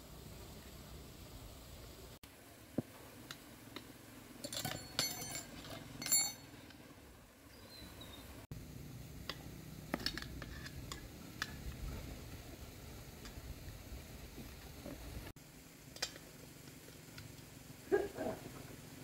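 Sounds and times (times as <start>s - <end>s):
metal hand tools clinking: 4.4s - 6.6s.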